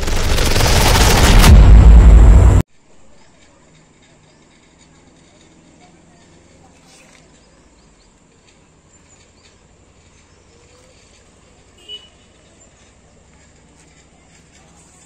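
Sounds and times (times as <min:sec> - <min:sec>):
faint bird chirps: 0:03.1 - 0:15.0.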